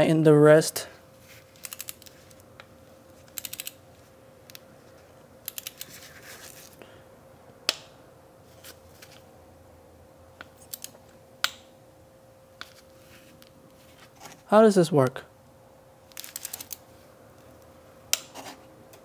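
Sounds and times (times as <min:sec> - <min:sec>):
ratcheting wrench clicking: 0:01.6 - 0:02.1, 0:03.3 - 0:03.8, 0:05.4 - 0:06.0, 0:10.6 - 0:11.0, 0:16.1 - 0:16.8.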